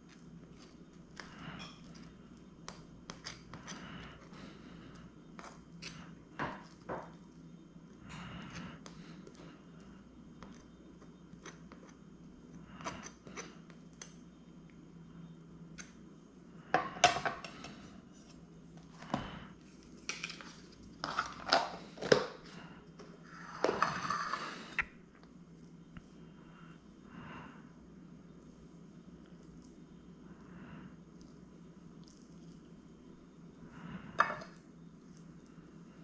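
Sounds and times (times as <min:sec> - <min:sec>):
knife spreading cream cheese: 0:00.1 - 0:07.3.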